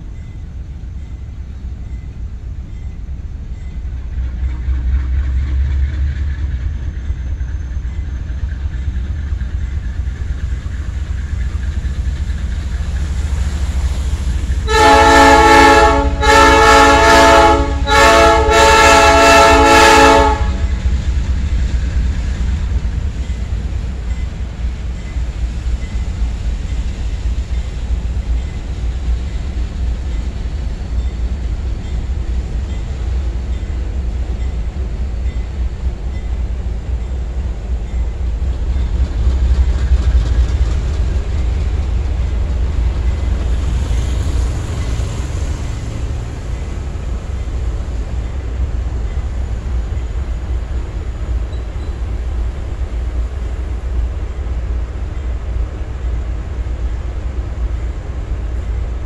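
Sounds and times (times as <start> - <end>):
train rumbling: 0.0 - 59.0
locomotive air horn blasts: 14.6 - 20.8.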